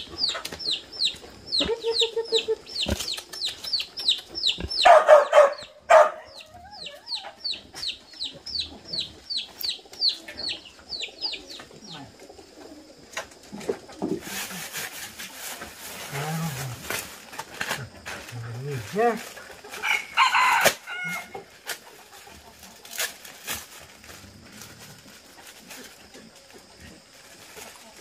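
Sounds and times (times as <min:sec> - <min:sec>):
chicks peeping: 0:00.0 - 0:14.0.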